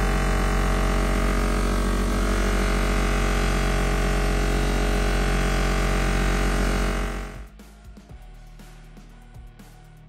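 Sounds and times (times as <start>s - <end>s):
bench buffer humming: 0.0s - 7.5s.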